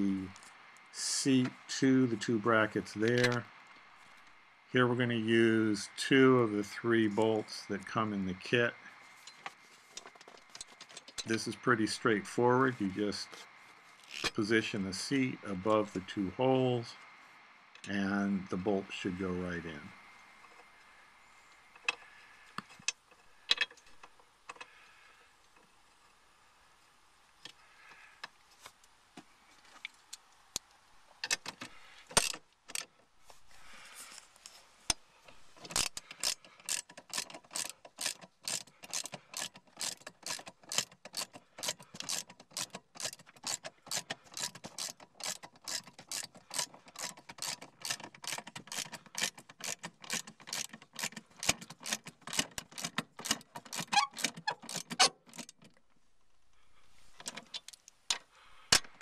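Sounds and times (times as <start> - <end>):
handling clicks and knocks: 9.2 - 11.4, 30.1 - 33.0, 34.9 - 55.9, 57.2 - 59.0
ratchet wrench clicking: 35.6 - 55.6.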